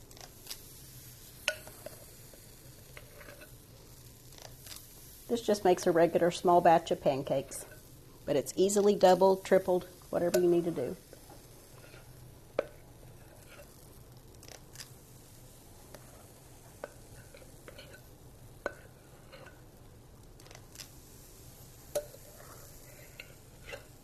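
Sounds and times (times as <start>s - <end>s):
soft scrapes and ticks: 13.2s - 13.8s, 15.9s - 18.1s.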